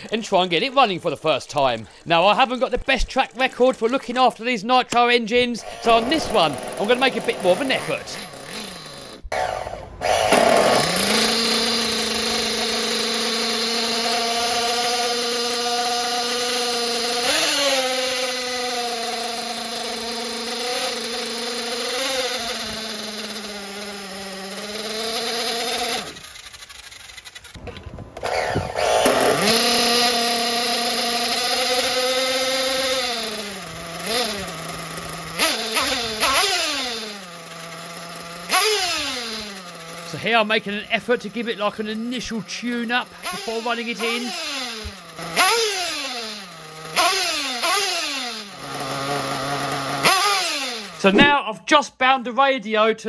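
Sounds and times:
small nitro engine revving: 5.5s - 51.3s.

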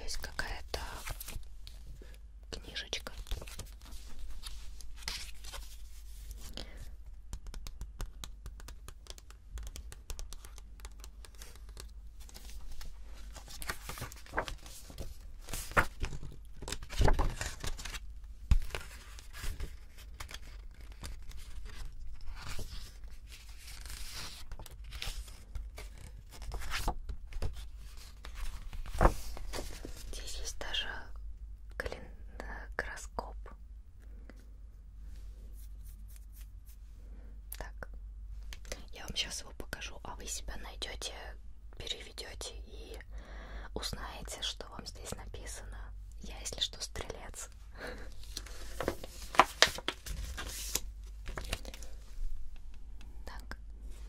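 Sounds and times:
paper pages rustling: 0.9s - 1.9s, 3.0s - 6.6s, 7.4s - 30.2s, 48.0s - 52.2s
pages snapping: 7.3s - 12.6s, 13.3s - 22.6s, 48.3s - 51.9s.

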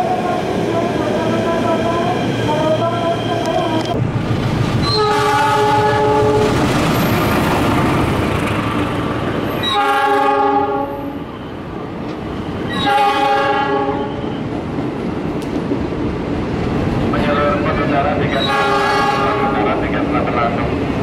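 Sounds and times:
passing train rumble and wheel noise: 0.0s - 21.0s
locomotive horn blasts: 4.8s - 6.5s, 9.6s - 11.2s, 12.8s - 14.3s, 18.4s - 19.6s.

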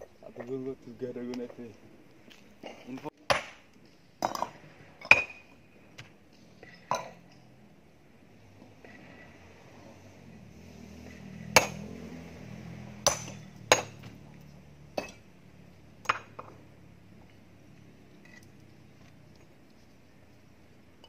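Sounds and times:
metal tool clinking on rock: 18.2s - 18.7s.

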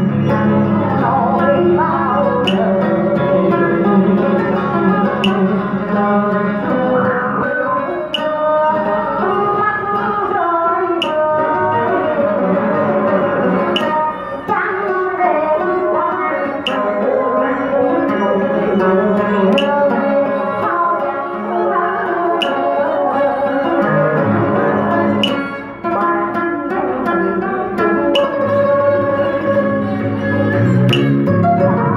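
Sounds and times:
woman singing into a microphone: 0.0s - 30.2s
plucked strings: 0.0s - 31.9s
sharp percussion tick: 1.4s - 7.4s, 8.1s - 10.3s, 10.9s - 12.0s, 13.5s - 14.2s, 16.4s - 17.1s, 17.9s - 20.8s, 28.1s - 29.6s, 30.9s - 31.4s.

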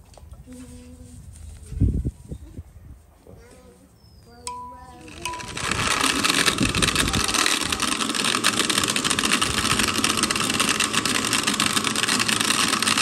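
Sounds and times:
blender motor running: 5.0s - 13.0s.

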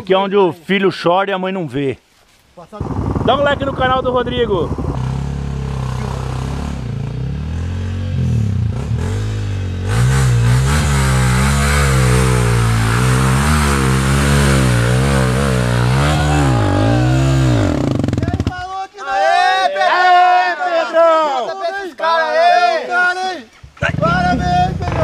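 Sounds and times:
dirt bike engine revving: 2.8s - 18.6s.

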